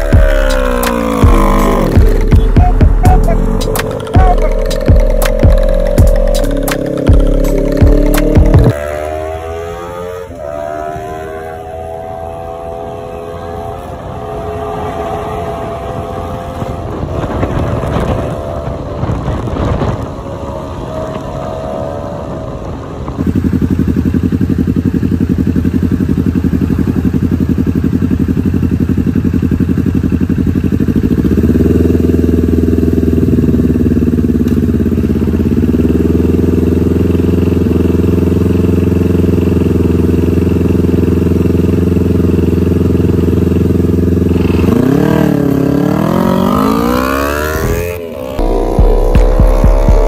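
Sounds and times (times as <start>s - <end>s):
motorcycle engine idling: 0.0s - 8.8s, 22.3s - 47.3s
engine revving: 0.0s - 25.7s, 29.9s - 50.0s.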